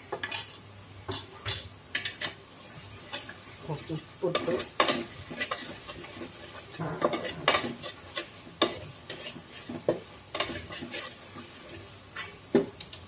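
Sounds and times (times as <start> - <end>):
low sizzle: 0.0 - 13.0
spatula scraping metal pot: 4.4 - 12.3.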